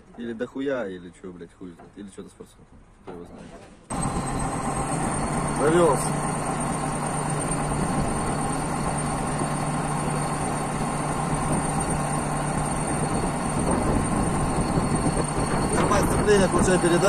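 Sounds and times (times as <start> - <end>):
bulldozer diesel engine idling: 3.9 - 17.0.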